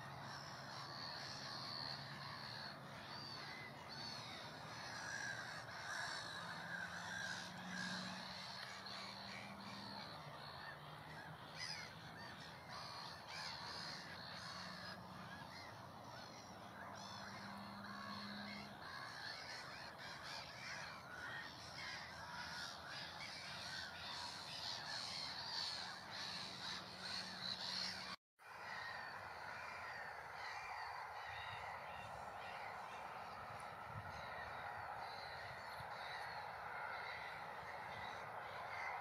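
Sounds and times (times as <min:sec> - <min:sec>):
birds calling: 0:00.0 - 0:39.0.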